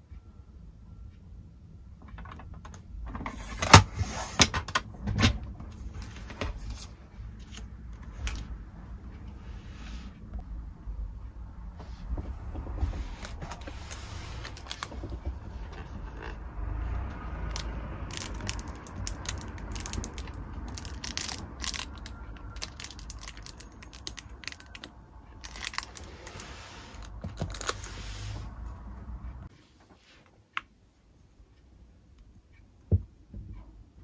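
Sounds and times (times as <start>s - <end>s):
steady low hum: 0.0s - 29.6s
paper and plastic crinkling: 13.0s - 15.2s, 17.5s - 28.1s.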